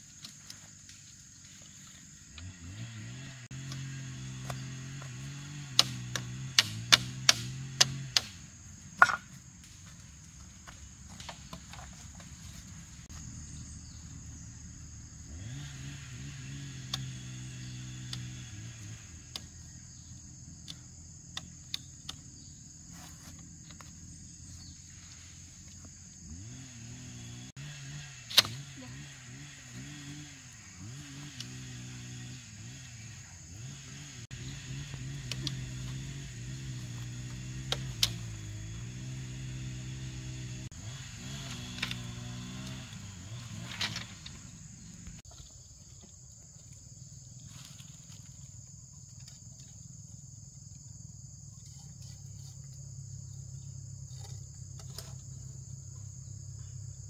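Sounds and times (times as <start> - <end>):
high insect drone: 0.0 - 57.0
low engine hum: 1.2 - 22.8, 23.4 - 45.3
bamboo slats clacking: 3.6 - 8.4, 9.0 - 10.0, 28.3 - 28.8, 34.8 - 40.4.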